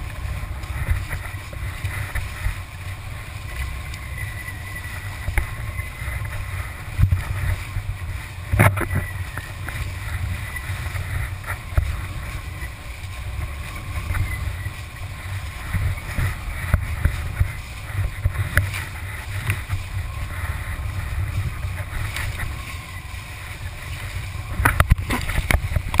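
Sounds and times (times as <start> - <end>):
water rushing and splashing: 0.0 - 26.0
wind buffeting microphone: 0.0 - 26.0.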